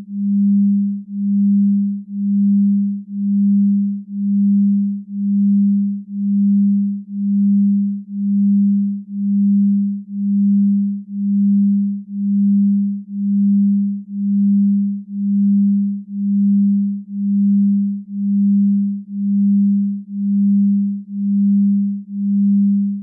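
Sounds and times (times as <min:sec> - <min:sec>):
pulsing low electronic tone: 0:00.0 - 0:23.0.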